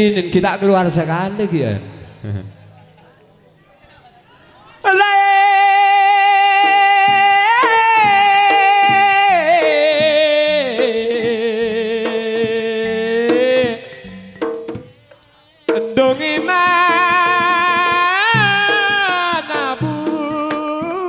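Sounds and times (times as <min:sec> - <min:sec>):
drum strokes: 0:06.2 - 0:21.0.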